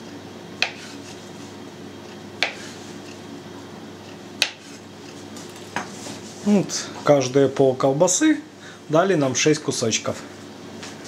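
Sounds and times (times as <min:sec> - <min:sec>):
faint steady hum: 0:00.0 - 0:11.0
knife chopping on cutting board: 0:00.6 - 0:01.2, 0:02.4 - 0:02.8, 0:04.4 - 0:04.8.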